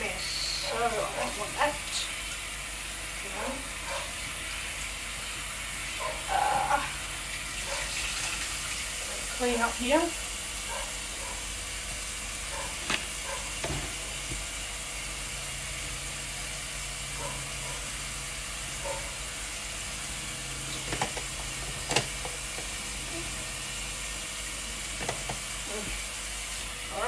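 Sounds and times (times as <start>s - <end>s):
dishes clinking and knocking: 20.7s - 22.7s.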